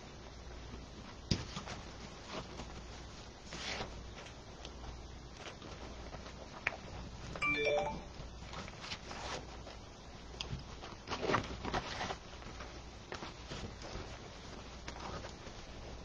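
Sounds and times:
short electronic chime: 0:07.4 - 0:08.1.

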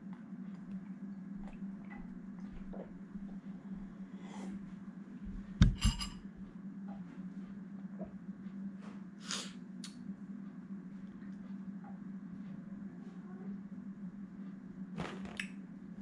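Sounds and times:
steady low hum: 0:00.0 - 0:16.0
soft breaths: 0:03.2 - 0:04.9.

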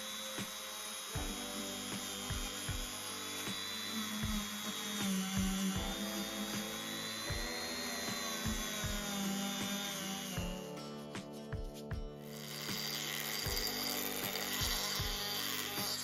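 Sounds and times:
rotary tool wire brush whining: 0:00.0 - 0:11.6, 0:12.2 - 0:16.0
background music with beat: 0:00.4 - 0:16.0.

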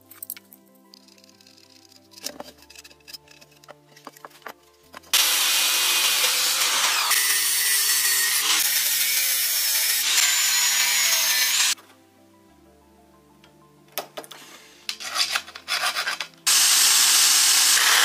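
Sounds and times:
background music: 0:00.0 - 0:18.0
angle grinder cutting metal: 0:05.1 - 0:11.8, 0:16.5 - 0:18.0.

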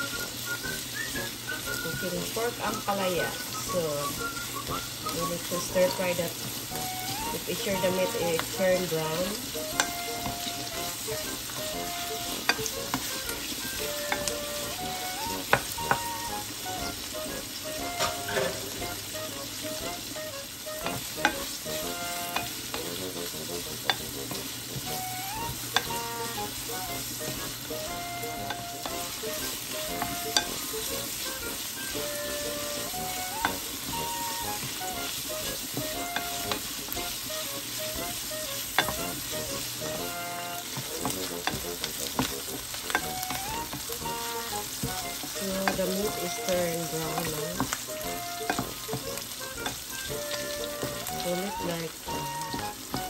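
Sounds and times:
meat sizzling in a frying pan: 0:00.0 - 0:53.0
spatula tapping a pan: 0:08.2 - 0:16.3, 0:20.8 - 0:23.0, 0:23.8 - 0:37.3, 0:37.9 - 0:53.0.

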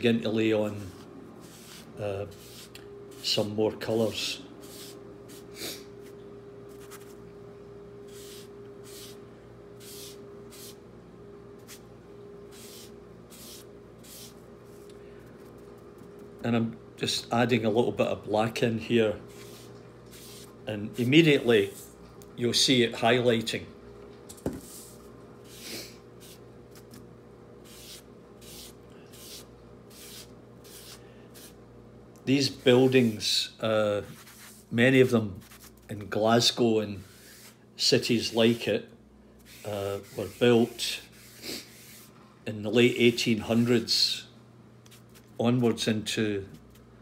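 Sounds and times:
steady hum: 0:00.0 - 0:47.0
pad rubbing on paper: 0:00.7 - 0:03.4, 0:04.6 - 0:07.2, 0:08.1 - 0:09.2, 0:09.8 - 0:10.8, 0:11.6 - 0:11.8, 0:12.5 - 0:14.8, 0:19.3 - 0:21.8, 0:24.6 - 0:27.0, 0:27.6 - 0:31.6, 0:34.0 - 0:34.7, 0:35.3 - 0:35.9, 0:37.0 - 0:38.7, 0:39.4 - 0:42.2.

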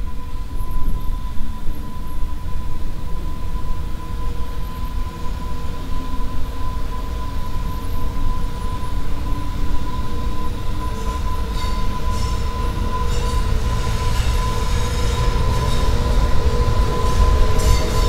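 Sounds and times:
electric locomotive rumble and whine: 0:00.0 - 0:18.0
wheels hissing on rails: 0:00.0 - 0:18.0.

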